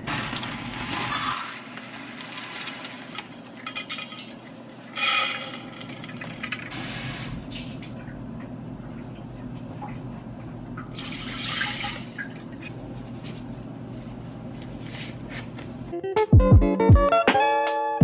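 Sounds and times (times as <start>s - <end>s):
metal cups and pots clinking: 1.1s - 6.7s.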